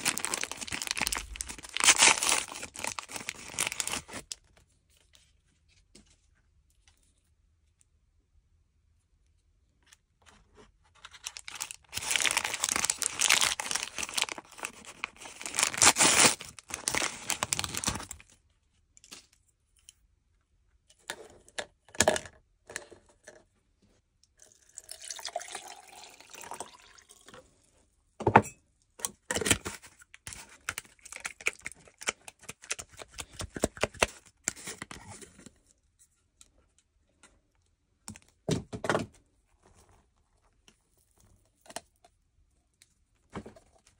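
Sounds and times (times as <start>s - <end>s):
plastic wrapper rustling and tearing: 0.0s - 4.6s, 10.9s - 18.4s, 29.3s - 35.2s.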